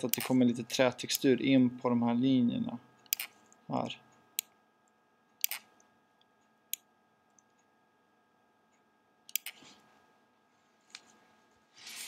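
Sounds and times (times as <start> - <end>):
computer clicks: 5.4 - 5.9.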